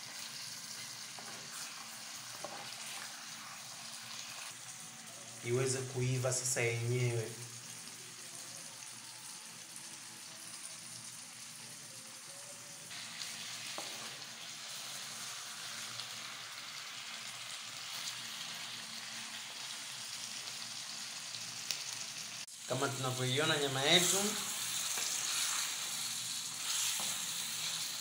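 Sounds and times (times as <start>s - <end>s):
meat sizzling in a pan: 0.0s - 28.0s
wooden spoon stirring: 1.1s - 4.6s.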